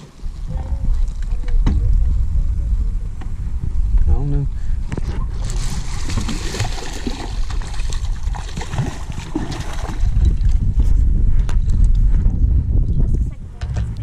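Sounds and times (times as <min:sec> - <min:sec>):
low rumble: 0:00.0 - 0:14.0
fish splashing at water surface: 0:05.4 - 0:10.3.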